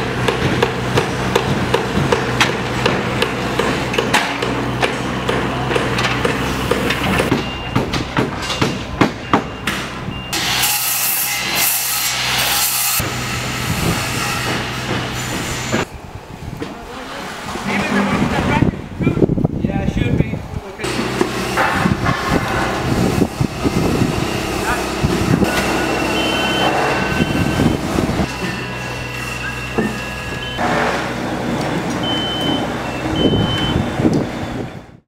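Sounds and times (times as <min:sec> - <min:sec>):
machinery drone: 0:20.8 - 0:35.0.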